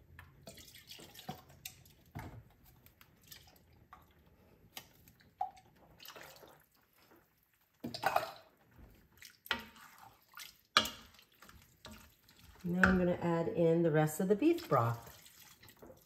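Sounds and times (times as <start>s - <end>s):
broth pouring and splashing into pot: 0.2s - 12.8s, 14.6s - 16.0s.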